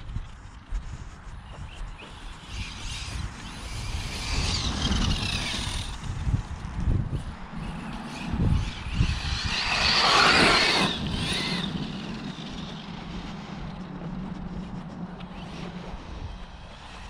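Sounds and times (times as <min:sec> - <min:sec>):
rc truck electric motor: 0:01.6 - 0:14.0.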